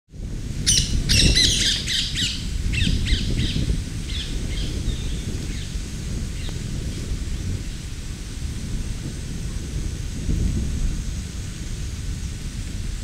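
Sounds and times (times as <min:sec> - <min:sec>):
steady low rumble: 0:00.2 - 0:13.0
birds calling: 0:00.6 - 0:05.7.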